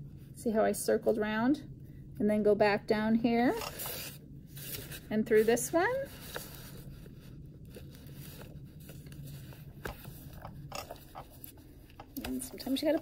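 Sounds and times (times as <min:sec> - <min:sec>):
paper rustling and scraping: 0:03.6 - 0:13.0.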